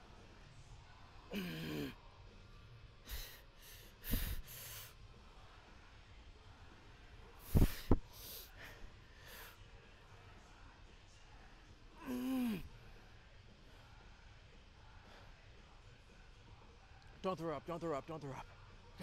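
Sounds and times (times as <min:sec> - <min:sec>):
man groaning: 0:01.3 - 0:02.0, 0:12.0 - 0:12.7
man breathing hard: 0:03.0 - 0:05.0, 0:07.4 - 0:09.6.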